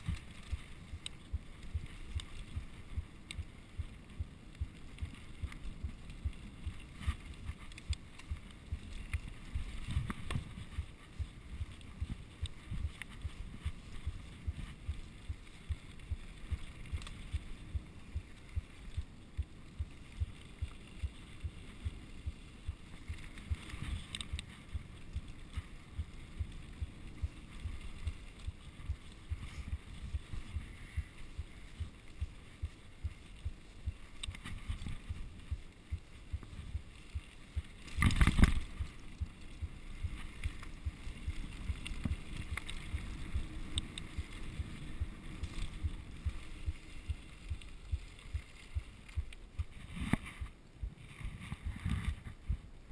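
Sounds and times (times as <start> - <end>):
bike rattling over bumps: 0.0 - 50.1.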